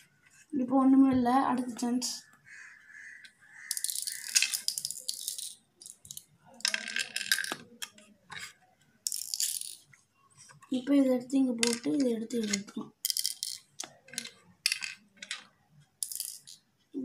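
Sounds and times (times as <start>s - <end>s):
shells clicking and rattling: 3.6s - 8.0s, 9.0s - 9.9s, 11.6s - 16.6s
shells dropping into wooden board: 3.7s - 7.7s.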